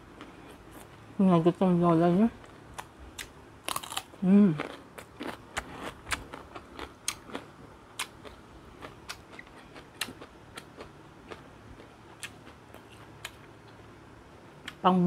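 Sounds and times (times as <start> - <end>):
chewing crisp cucumber: 2.4 - 13.8.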